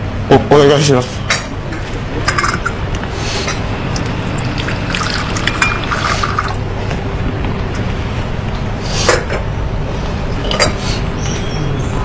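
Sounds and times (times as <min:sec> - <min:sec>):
coffee pouring into a cup: 0:03.9 - 0:06.7.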